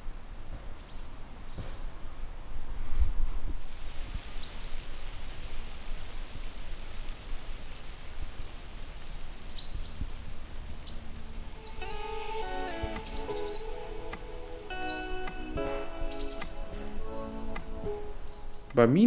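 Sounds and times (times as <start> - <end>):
songbirds high thin calls: 4.3 - 5.2, 6.6 - 18.8.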